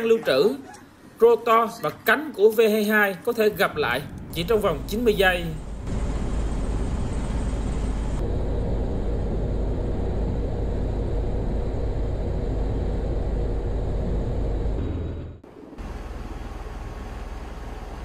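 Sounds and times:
faint steady hum: 3.1 - 18.0
aircraft turbine rush: 3.5 - 17.6.

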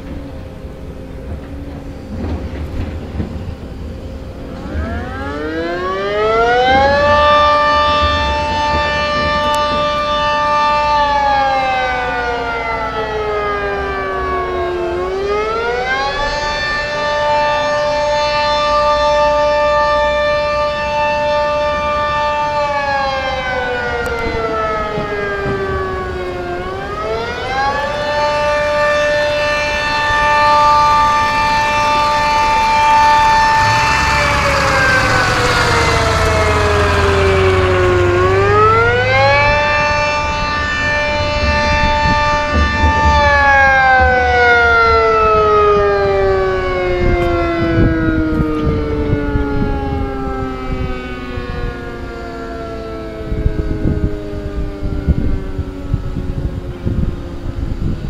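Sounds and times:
two-tone warning siren: 0.0 - 58.0.

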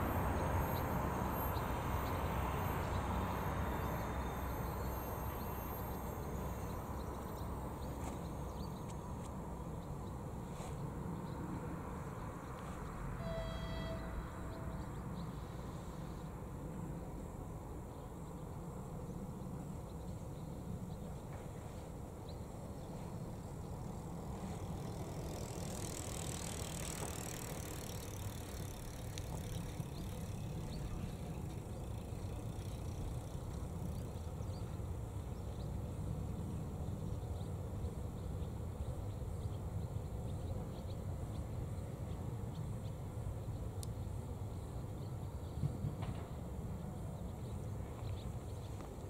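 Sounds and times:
bicycle riding over crossing: 0.0 - 11.1, 11.8 - 16.1, 23.0 - 36.3
low outdoor rumble: 0.0 - 49.0.

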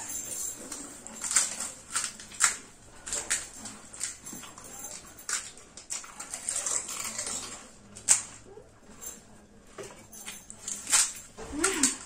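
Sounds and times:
mouths chewing and slurping: 0.0 - 9.3.

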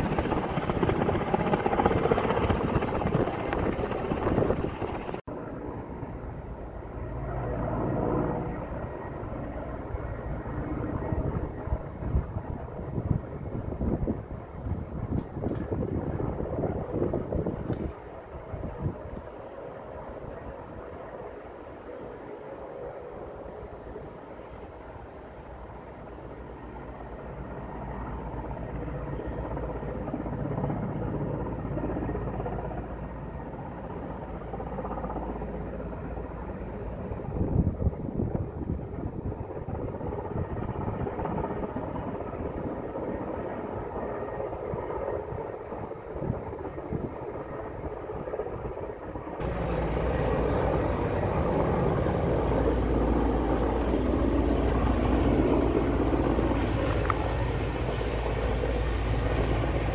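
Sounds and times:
distant aircraft droning: 0.0 - 59.9
noisy wash: 49.2 - 59.9
low engine rumble: 49.4 - 59.9.

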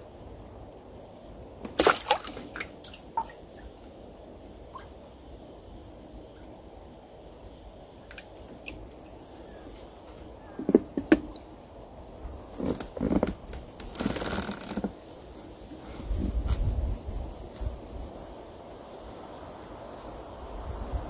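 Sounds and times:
rustling of line and sleeve: 12.5 - 18.1.

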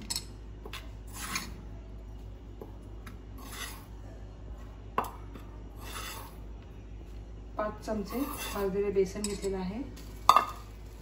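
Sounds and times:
flour pouring and scraping: 5.8 - 6.4, 8.2 - 8.7
spoon clinking against steel: 9.2 - 9.6.

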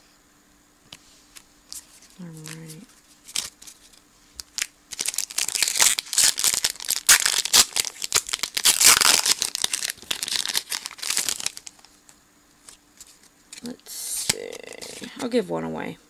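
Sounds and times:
foil wrapper tearing and crinkling: 2.2 - 11.9.

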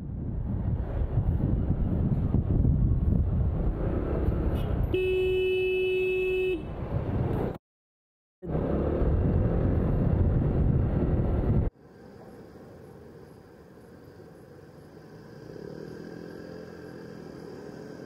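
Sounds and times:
wind and motorbike road rumble: 0.0 - 7.6, 8.4 - 18.0
vehicle horn honk: 4.6 - 6.7.

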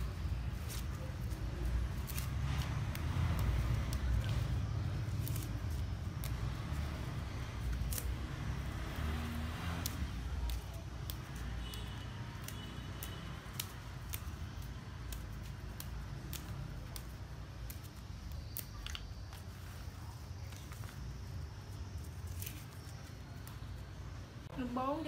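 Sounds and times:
basil stems snapping: 0.0 - 19.5
leaves rustling: 0.0 - 24.8.

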